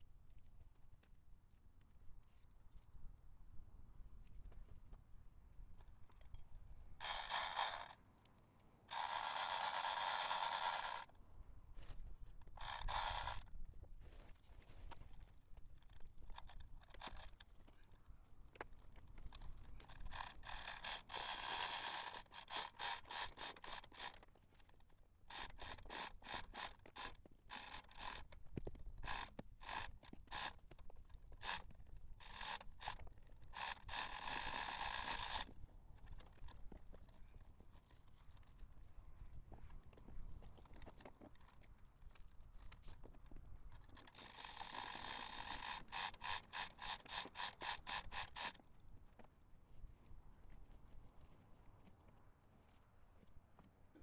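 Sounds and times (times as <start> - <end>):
ratchet clicking: 7.0 - 8.0, 8.9 - 11.1, 12.6 - 13.4, 15.8 - 17.4, 19.3 - 30.8, 31.4 - 36.6, 43.8 - 48.6.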